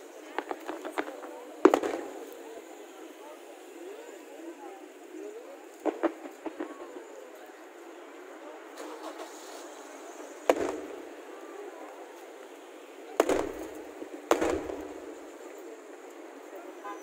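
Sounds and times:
steady background noise: 0:00.0 - 0:17.0
firework shells bursting: 0:00.4 - 0:02.4, 0:05.8 - 0:07.2, 0:08.7 - 0:11.4, 0:13.1 - 0:16.2.

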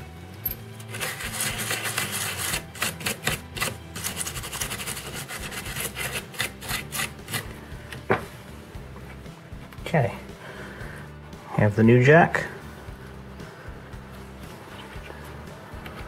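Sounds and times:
toothbrush scrubbing circuit board: 0:00.9 - 0:07.5.

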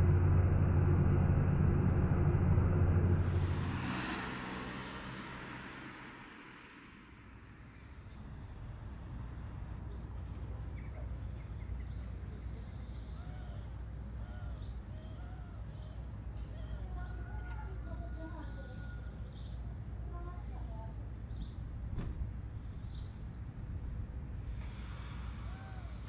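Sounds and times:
rush of noise: 0:00.0 - 0:08.2
low rumble: 0:00.0 - 0:10.1
vehicle engine humming: 0:00.0 - 0:26.0.

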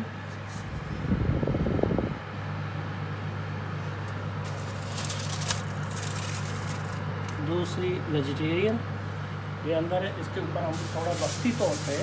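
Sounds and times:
oven fan humming: 0:00.0 - 0:12.0
foil trays clattering: 0:04.4 - 0:07.0, 0:10.7 - 0:12.0
foil crinkling and scraping: 0:04.4 - 0:07.4, 0:10.7 - 0:12.0.

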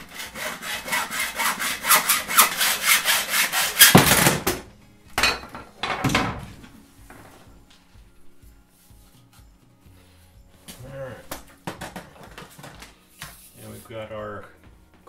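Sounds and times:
hacksaw cutting metal: 0:00.0 - 0:04.6.

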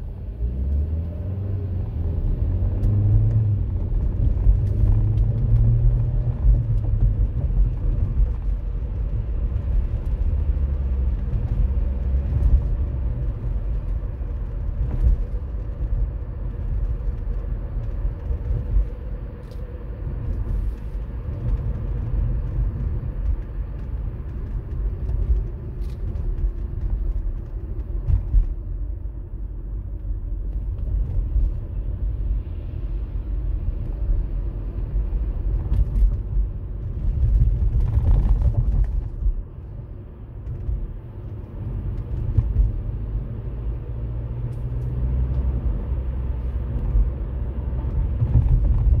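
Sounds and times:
car engine and tyres rumbling: 0:00.0 - 0:49.0.

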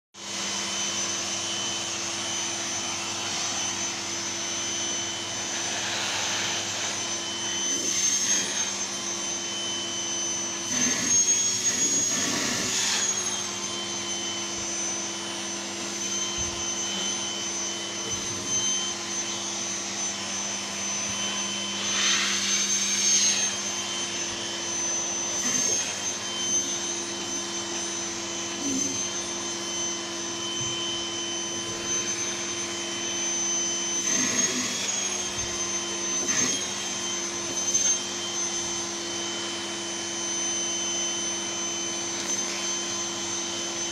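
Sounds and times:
vacuum cleaner whining: 0:00.1 - 0:43.9.

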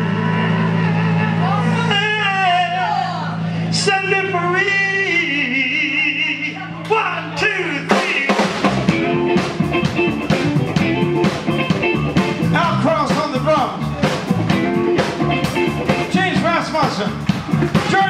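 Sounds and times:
blues-rock band playing: 0:07.4 - 0:18.0.

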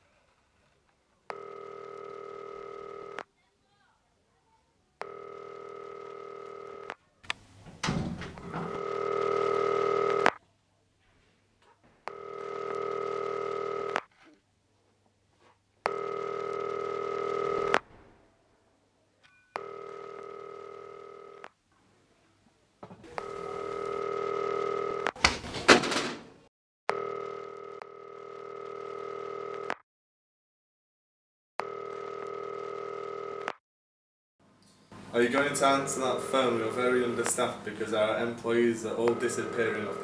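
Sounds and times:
telephone ringing: 0:01.3 - 0:03.3, 0:05.0 - 0:07.0, 0:08.5 - 0:10.4, 0:12.0 - 0:14.1, 0:15.8 - 0:17.8, 0:19.4 - 0:21.5, 0:23.1 - 0:25.2, 0:26.9 - 0:29.8, 0:31.6 - 0:33.6, 0:35.3 - 0:40.0.

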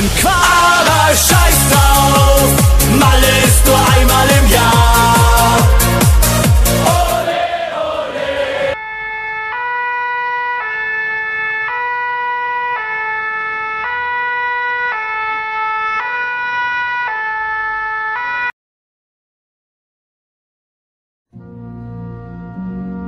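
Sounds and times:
dance music: 0:00.0 - 0:08.8
two-tone ambulance siren: 0:08.7 - 0:18.6.

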